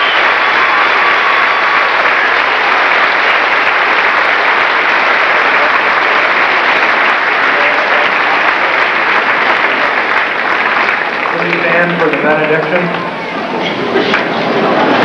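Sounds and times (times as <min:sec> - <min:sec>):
audience applauding: 0:00.0 - 0:15.0.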